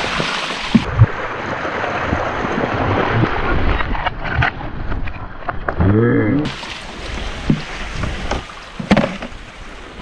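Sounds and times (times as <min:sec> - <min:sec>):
surf: 0:00.0 - 0:10.0.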